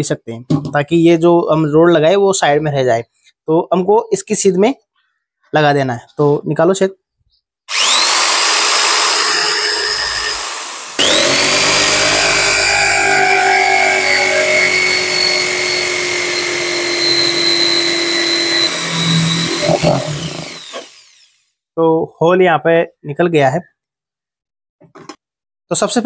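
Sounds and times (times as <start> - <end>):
electric drill cutting plastic: 7.7 - 21.4.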